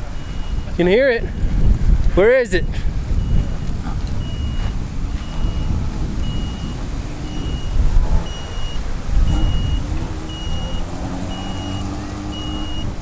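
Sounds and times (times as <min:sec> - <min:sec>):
wind rumble on microphone: 0:00.0 - 0:13.0
short high beeps: 0:00.2 - 0:00.8, 0:02.6 - 0:03.6, 0:04.2 - 0:12.9.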